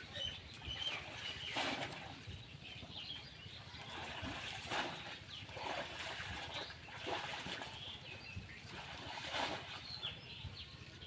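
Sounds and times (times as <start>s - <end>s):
birds chirping: 0.0s - 11.0s
water splashing around wading legs: 0.7s - 2.2s, 3.8s - 10.2s.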